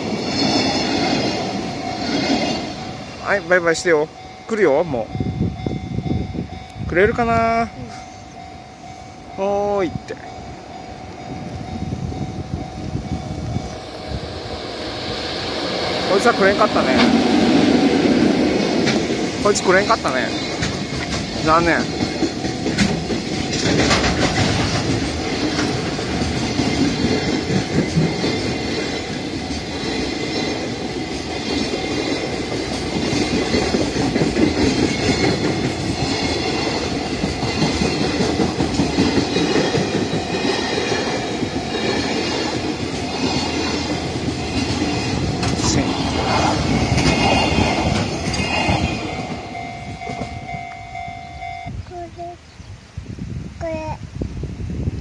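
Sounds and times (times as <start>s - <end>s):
train wheels rumbling on rails: 0.0s - 51.5s
clickety-clack of rail joints: 15.9s - 50.6s.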